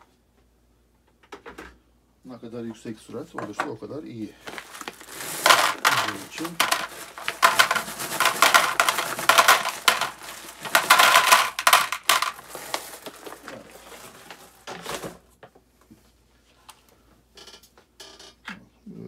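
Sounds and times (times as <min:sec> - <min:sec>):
small metal parts clinking: 0:04.5 - 0:13.6.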